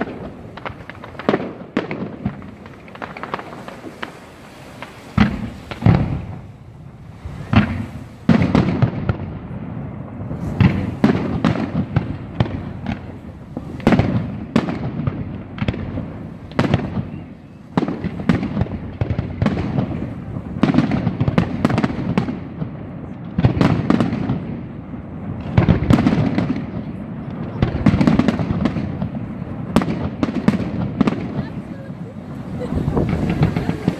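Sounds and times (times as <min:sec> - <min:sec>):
fireworks shells bursting: 0:00.0 - 0:06.6
continuous rumble: 0:04.8 - 0:33.9.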